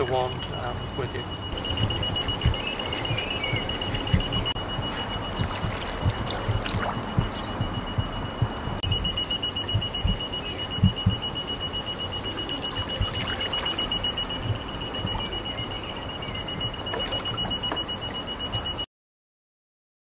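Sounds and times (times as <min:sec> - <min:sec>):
high-pitched warning beeper: 0:00.0 - 0:18.8
low thumps: 0:01.4 - 0:12.2.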